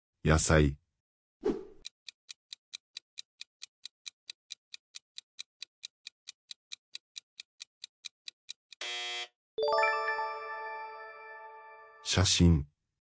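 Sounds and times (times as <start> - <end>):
clock ticking sound effect: 1.8 - 8.8.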